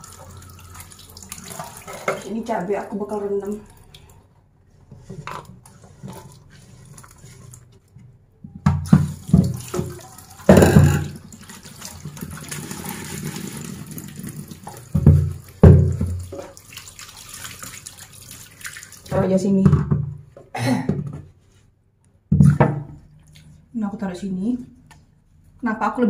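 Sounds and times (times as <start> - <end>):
hands rinsing under water: 0.0 - 4.2, 8.8 - 19.2.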